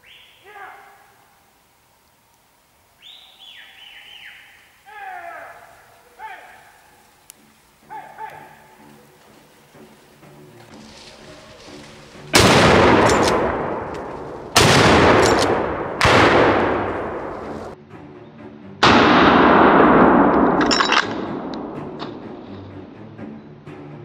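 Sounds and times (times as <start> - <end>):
rifle shots with rolling echo: 12.3 - 17.8, 18.8 - 22.0.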